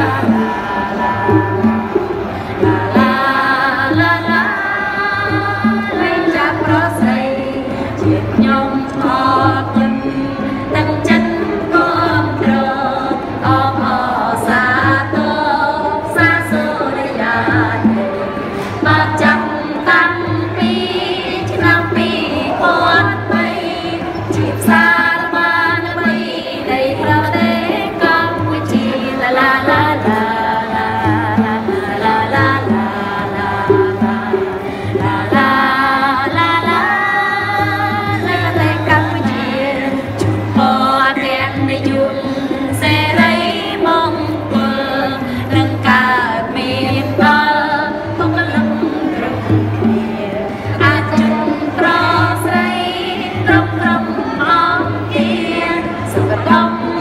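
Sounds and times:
instrumental accompaniment: 0.0s - 57.0s
person singing: 0.0s - 57.0s.

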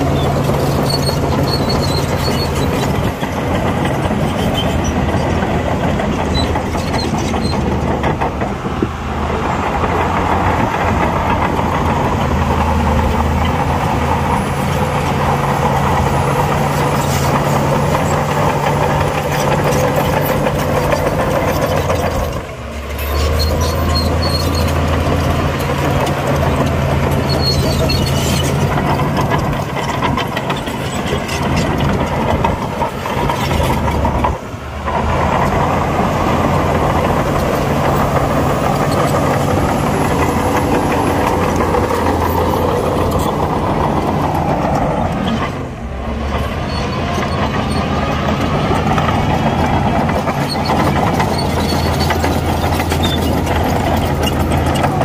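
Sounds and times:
heavy diesel engine running: 0.0s - 55.0s.

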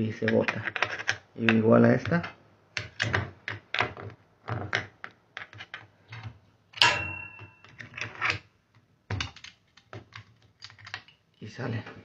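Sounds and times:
ringing metallic clack: 6.8s - 7.7s.

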